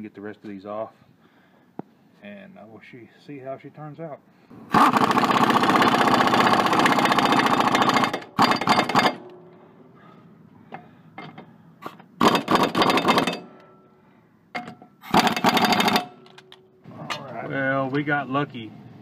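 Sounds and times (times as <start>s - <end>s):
impact wrench rattling: 4.7s - 9.6s, 10.7s - 13.8s, 14.5s - 16.6s.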